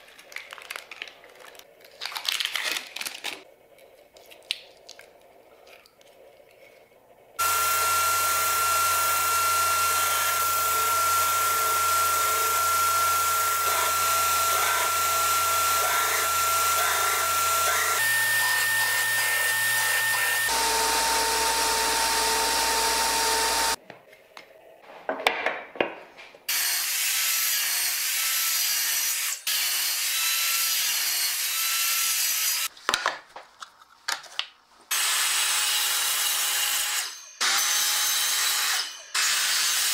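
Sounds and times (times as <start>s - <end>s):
belt grinder running: 7.4s - 23.8s.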